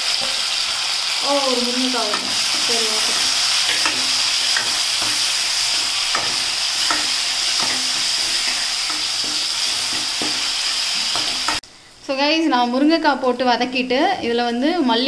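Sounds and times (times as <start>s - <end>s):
food sizzling in oil: 0.0s - 11.6s
metal ladle scraping pan: 2.1s - 11.6s.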